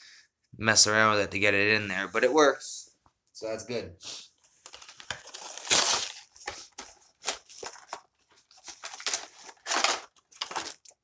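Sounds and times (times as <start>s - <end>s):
plastic packaging crinkling: 4.6s - 11.0s.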